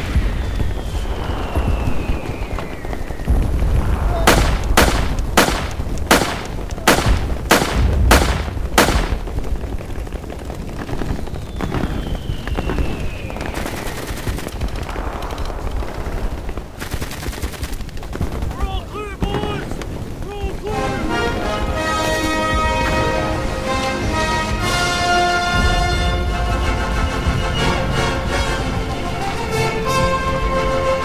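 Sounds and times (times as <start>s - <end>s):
high falling whistle: 0.0s - 4.3s, 11.3s - 13.6s
low rumble: 0.0s - 18.6s
gunshots: 0.0s - 23.4s.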